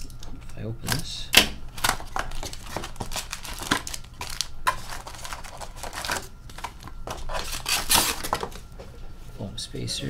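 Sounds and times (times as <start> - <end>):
card packs rustling and crinkling: 1.7 - 8.8.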